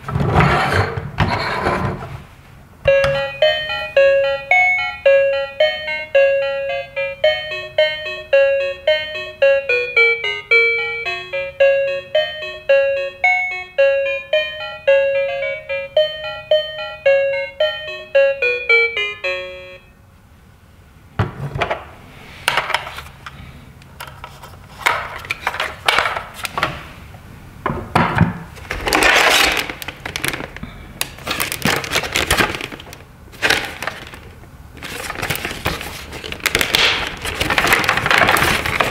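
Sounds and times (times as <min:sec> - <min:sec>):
toy electronic tune: 0:02.9 - 0:19.9
plastic blister pack crackling: 0:28.6 - 0:38.9.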